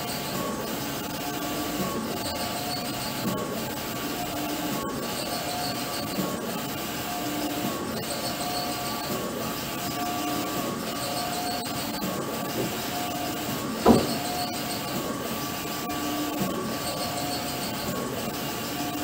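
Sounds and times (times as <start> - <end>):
printer carriage whirring: 0.0 - 19.0
loud thump: 13.8 - 14.3.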